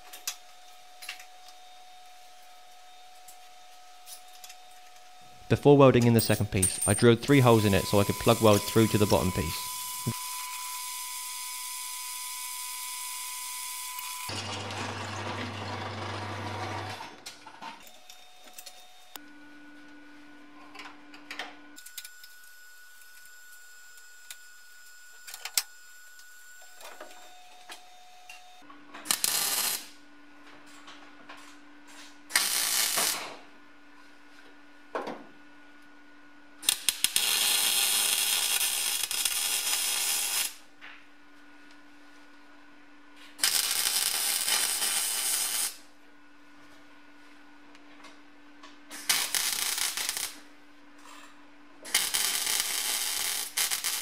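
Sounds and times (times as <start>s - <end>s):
welder arc crackling: 7.3s - 10.5s, 32.3s - 33.2s, 36.7s - 40.6s, 43.4s - 45.8s, 49.0s - 50.4s, 51.9s - 54.0s.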